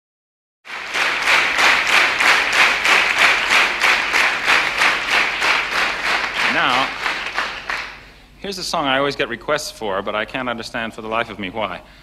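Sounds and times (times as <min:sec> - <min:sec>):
audience clapping in unison: 0:00.7 - 0:08.1.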